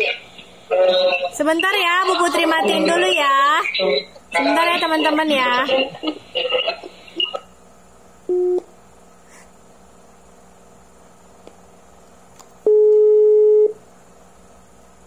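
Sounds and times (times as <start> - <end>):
phone ringback tone: 8.3 - 8.6, 12.7 - 13.7
short phone beep: 12.7 - 13.8.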